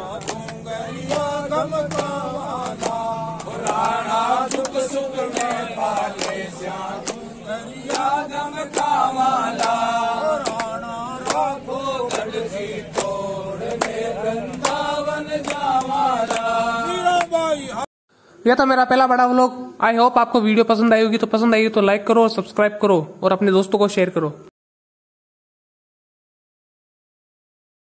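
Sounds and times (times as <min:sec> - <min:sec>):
men singing a devotional chant: 0:00.0 - 0:17.9
hand claps: 0:00.1 - 0:17.4.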